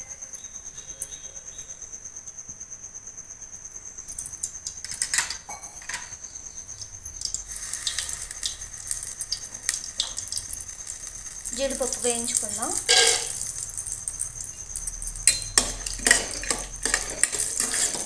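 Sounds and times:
ghee sizzling and popping: 4.0 - 18.0
steel cup clinking on pan: 12.8 - 13.5, 15.2 - 18.0.

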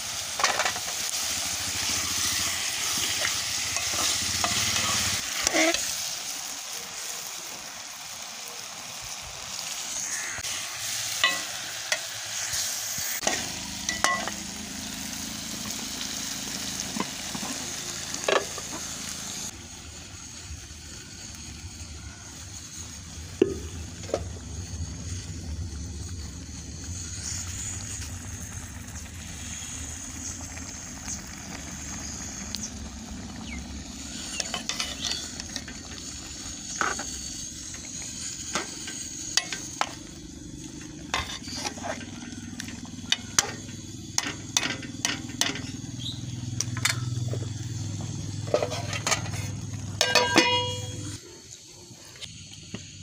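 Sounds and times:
steady sizzle: 0.0 - 53.0
spoon scraping and clinking pot: 48.4 - 51.1.

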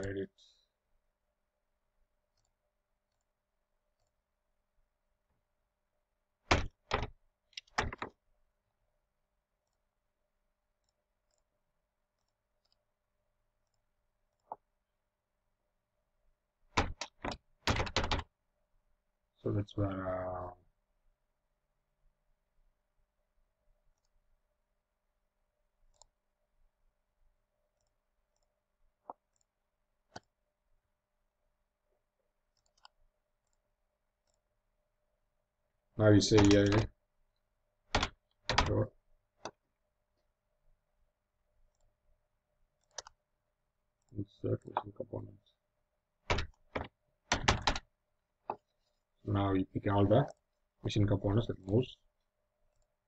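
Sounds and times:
computer mouse clicks: 2.3 - 3.3, 10.8 - 11.5, 12.2 - 12.8, 13.6 - 14.7, 23.9 - 24.2, 25.9 - 26.2, 27.7 - 29.5, 30.1 - 30.4, 32.5 - 34.5, 36.3 - 37.0, 41.7 - 42.0, 42.8 - 43.2
mouse and keyboard clicks: 32.6 - 33.6, 36.3 - 36.9, 42.8 - 43.2.

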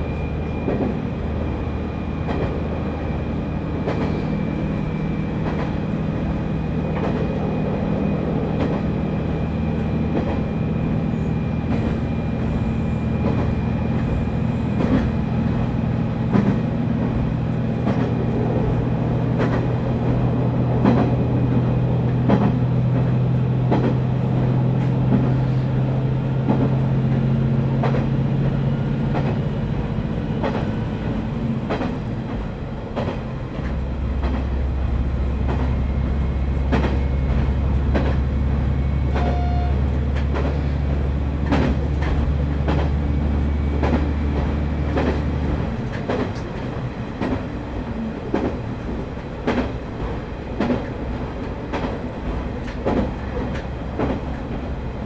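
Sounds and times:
wheels clacking over rail joints: 39.1 - 54.7.

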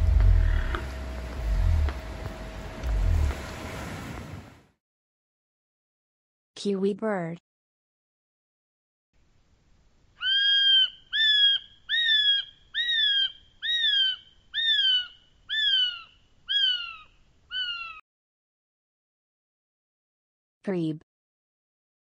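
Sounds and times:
bird shrill whistles: 10.2 - 17.0.

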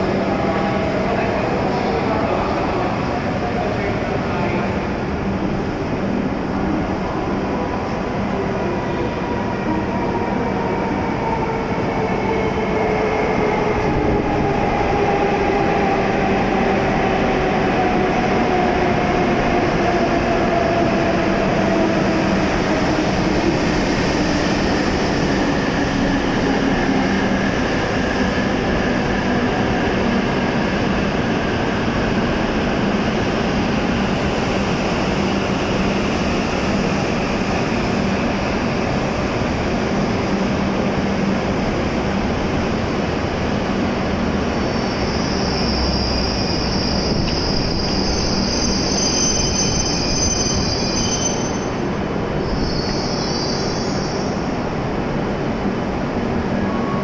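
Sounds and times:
rumble of train cars passing: 0.0 - 57.0
train braking: 44.6 - 54.5.

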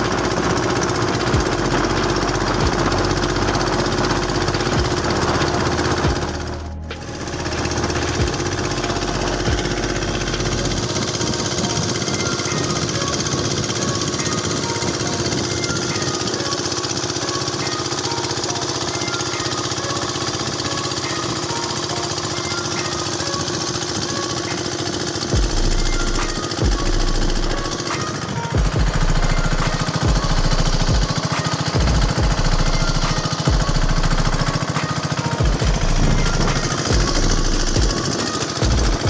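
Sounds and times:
small boat engine rattling: 0.0 - 39.0.

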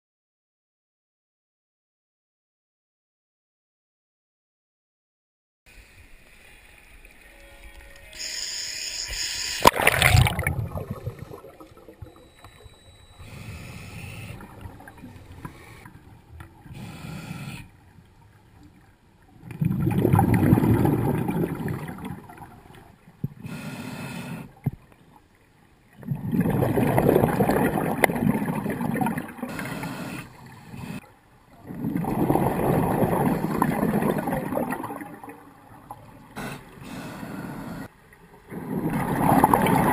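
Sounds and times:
water splashing: 9.2 - 23.3, 26.0 - 31.0, 31.6 - 37.2
exhaled bubbles rushing: 9.6 - 12.4, 19.4 - 22.7, 26.0 - 29.5, 31.6 - 36.2, 38.4 - 39.9.

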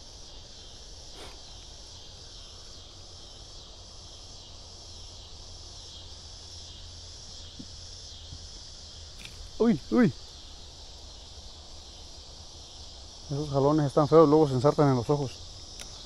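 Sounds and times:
insects chirping chorus: 0.0 - 16.0.

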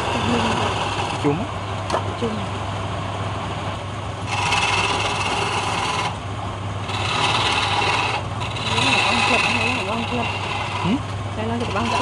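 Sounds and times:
chisel scraping spinning wood: 0.0 - 1.3, 4.2 - 6.2, 6.8 - 12.0
wood lathe humming: 0.0 - 1.3, 4.2 - 6.2, 6.8 - 12.0.

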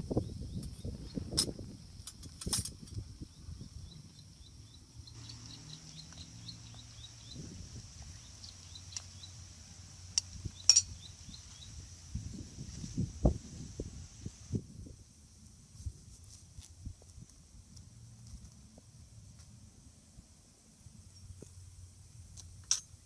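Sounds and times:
high insect buzz: 0.1 - 14.6
faint chirps: 3.1 - 12.0
metal spoon clinking bowl: 10.7 - 11.0.

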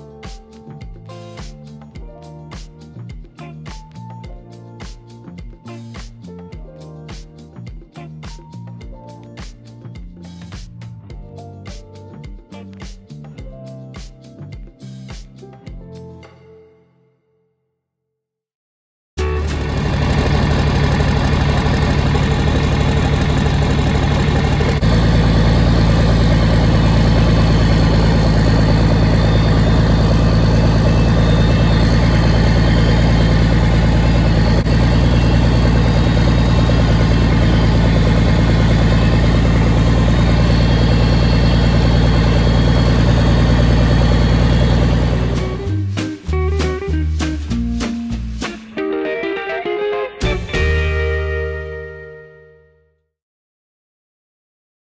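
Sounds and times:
tractor diesel engine running: 19.2 - 46.0.

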